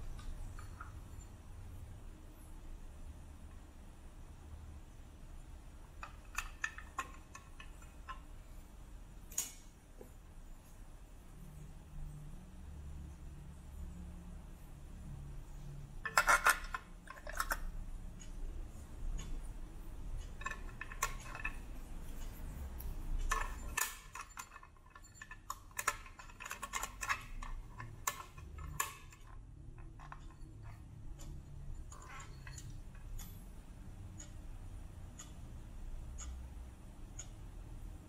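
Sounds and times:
plastic clicks and rattles: 0:06.0 - 0:08.3, 0:16.0 - 0:17.8, 0:20.2 - 0:22.4, 0:23.2 - 0:33.1.

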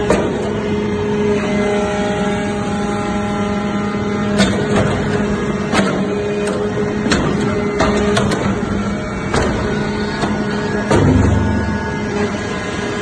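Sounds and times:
held whine: 0:00.0 - 0:13.0
hydraulic hum: 0:00.0 - 0:13.0
metallic clunks and knocks: 0:04.4 - 0:08.6, 0:09.3 - 0:11.9.

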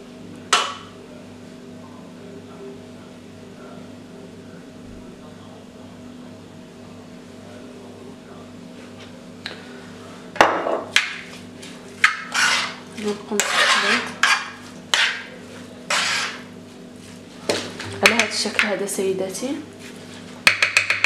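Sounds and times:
utensil scraping frying pan: 0:11.6 - 0:18.5
utensil knocking against pan: 0:17.5 - 0:18.8, 0:20.4 - 0:21.0.

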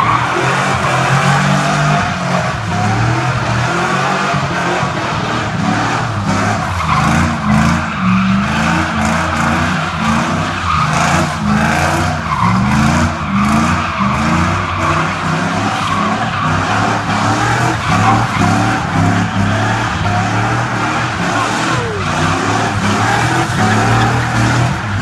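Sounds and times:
truck engine revving: 0:00.1 - 0:25.0
tyres squealing on pavement: 0:05.8 - 0:25.0.

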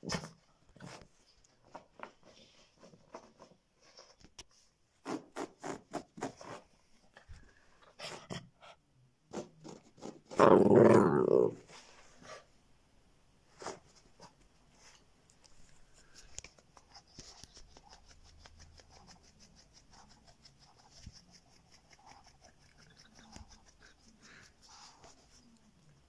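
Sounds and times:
faint rustling on carpet: 0:11.6 - 0:12.6, 0:13.4 - 0:17.9.

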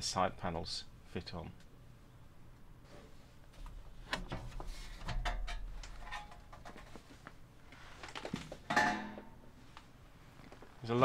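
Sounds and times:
metal cover scraping and clicking: 0:05.1 - 0:06.9.

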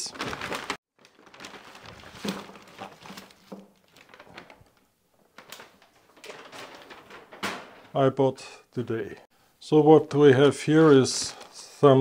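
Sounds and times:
paper and plastic rustling: 0:00.0 - 0:08.1.

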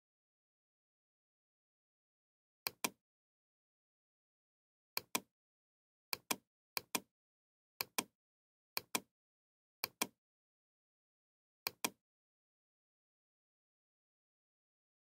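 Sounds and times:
computer mouse clicking: 0:02.7 - 0:03.0, 0:05.0 - 0:05.3, 0:06.2 - 0:07.1, 0:07.8 - 0:08.1, 0:08.8 - 0:09.1, 0:09.8 - 0:10.2, 0:11.7 - 0:12.0.

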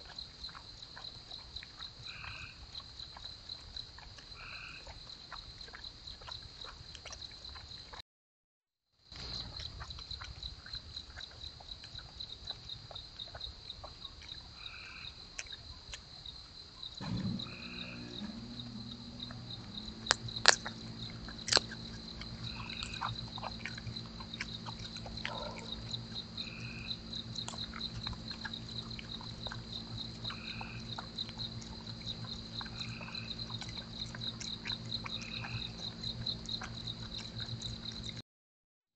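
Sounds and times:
frogs calling: 0:00.0 - 0:08.0, 0:09.2 - 0:15.6, 0:16.8 - 0:38.2
sharp clicks: 0:17.0 - 0:25.4
low multi-tone hum: 0:17.0 - 0:38.2
high-pitched insect trill: 0:17.4 - 0:38.2.

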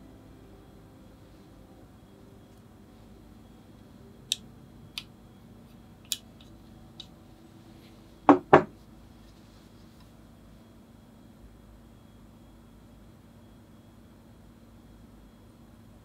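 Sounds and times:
louder knocks on teapot: 0:08.3 - 0:08.7.

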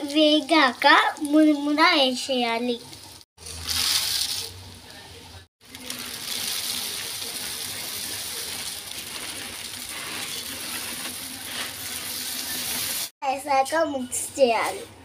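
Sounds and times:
puffed rice pattering into pot: 0:03.4 - 0:04.6, 0:05.6 - 0:13.1.

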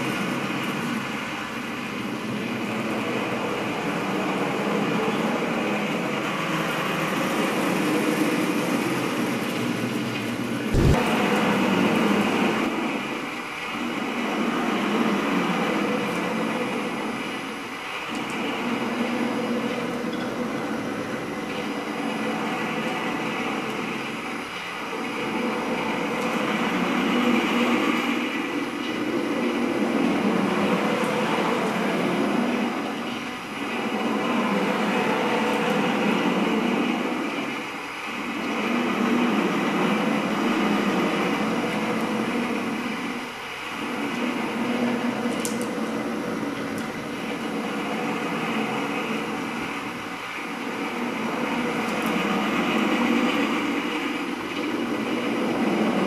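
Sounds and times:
drawing machine mechanical rumble: 0:10.7 - 0:12.7.

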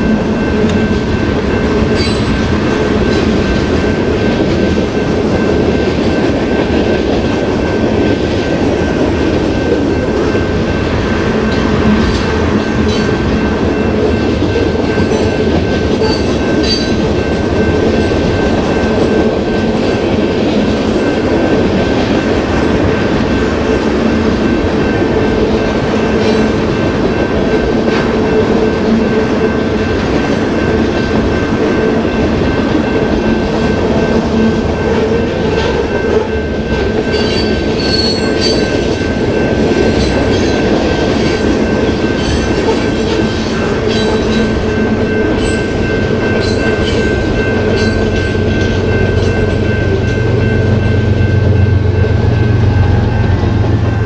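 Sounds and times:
train wheels rumbling on rail: 0:00.0 - 0:54.0
high ringing tone: 0:28.2 - 0:54.0.

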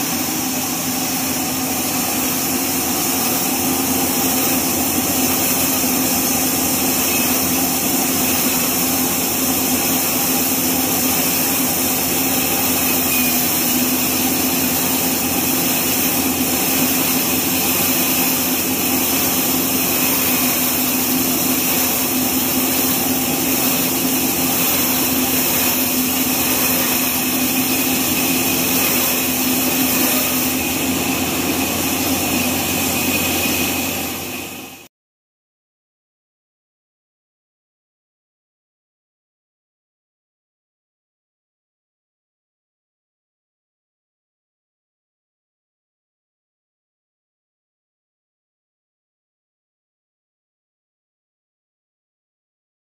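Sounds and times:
band sawmill cutting log: 0:00.0 - 0:34.9.

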